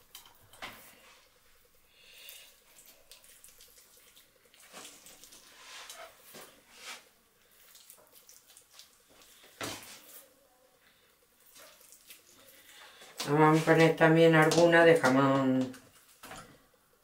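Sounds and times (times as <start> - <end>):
wet handling of raw meat: 2.5 - 10.4, 11.4 - 13.9.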